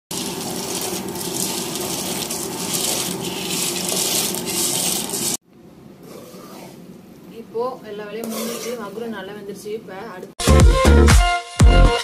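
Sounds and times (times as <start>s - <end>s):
dry pasta pouring into metal bowl: 0.1s - 5.4s.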